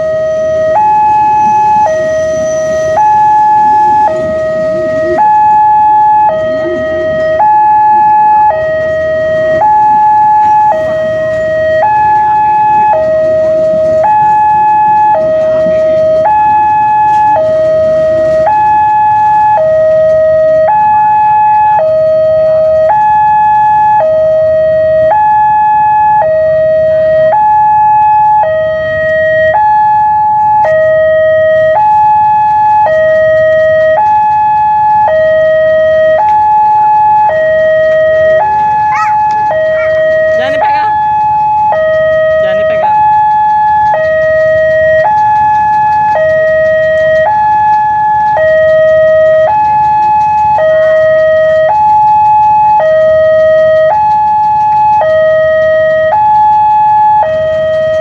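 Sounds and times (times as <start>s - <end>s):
train carriages rumbling: 0.0s - 23.8s, 29.7s - 58.0s
two-tone crossing alarm: 0.0s - 58.0s.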